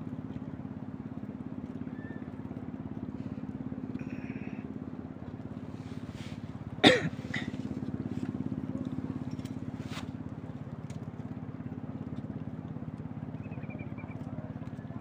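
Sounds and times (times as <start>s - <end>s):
low pulsing engine drone: 0.0s - 15.0s.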